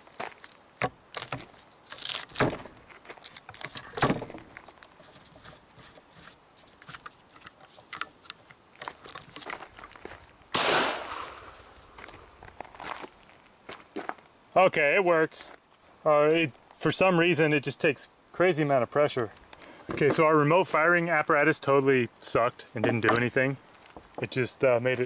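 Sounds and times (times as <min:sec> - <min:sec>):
pistol shot with echo: 0:10.5 - 0:11.5.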